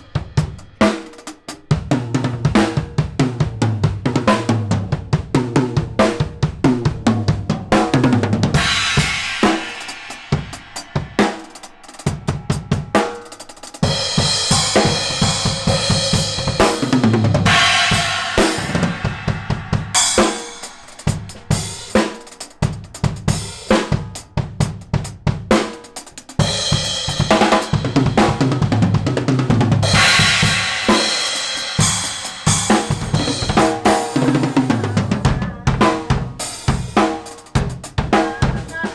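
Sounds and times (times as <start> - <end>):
drum kit played fast: 0.0 - 38.9
crash cymbals ringing: 8.6 - 16.5.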